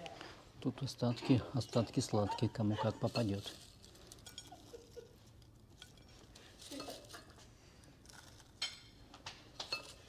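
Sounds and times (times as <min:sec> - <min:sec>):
clinks on china plates: 0:04.2 - 0:04.6, 0:09.6 - 0:10.0.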